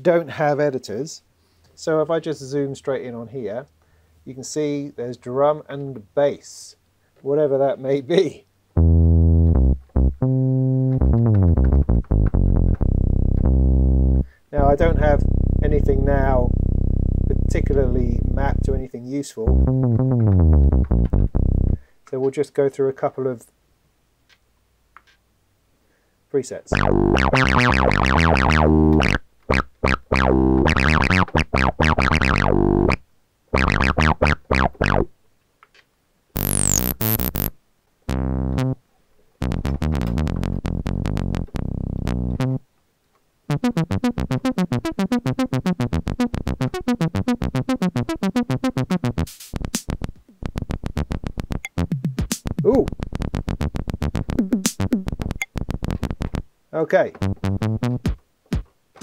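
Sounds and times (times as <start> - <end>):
low synth notes: 8.8 - 21.8, 26.7 - 35.1, 36.4 - 38.8, 39.4 - 42.6, 43.5 - 56.4, 57.2 - 58.2
high falling synth sweep: 12.8 - 18.6, 26.7 - 33.0, 33.6 - 35.1, 36.4 - 37.5, 38.1 - 38.8, 39.4 - 42.6, 43.5 - 56.4
fast repeated synth hits: 36.4 - 37.5, 39.4 - 42.6, 43.5 - 56.4.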